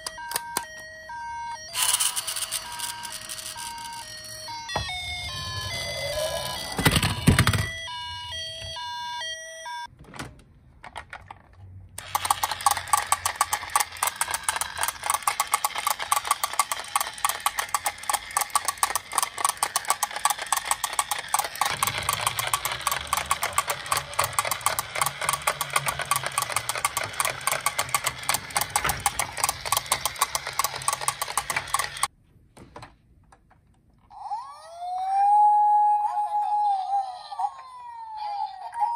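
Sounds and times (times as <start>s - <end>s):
electronic beep jingle: 1.2s - 9.9s
fast mechanical ticking: 12.0s - 32.1s.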